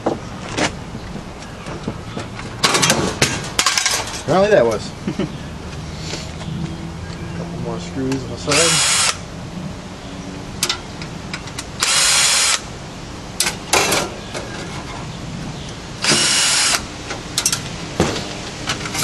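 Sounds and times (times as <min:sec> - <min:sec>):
sharp clicks and metal clanks: 0:02.4 - 0:04.3
cordless drill whirring: 0:08.5 - 0:09.2, 0:16.0 - 0:16.8.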